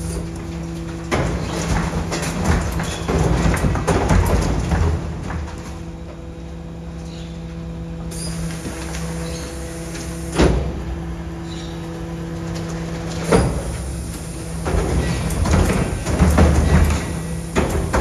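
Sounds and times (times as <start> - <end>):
rattling and clatter: 0.0 - 5.9, 14.5 - 18.0
hydraulic bin lifter humming: 0.0 - 18.0.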